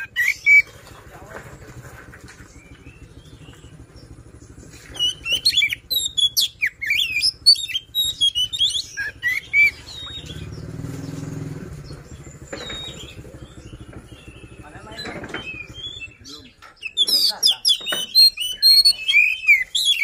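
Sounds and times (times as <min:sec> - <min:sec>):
bird singing whistles and chirps: 0:00.0 - 0:00.7, 0:02.5 - 0:20.0
low rumble: 0:00.7 - 0:16.5.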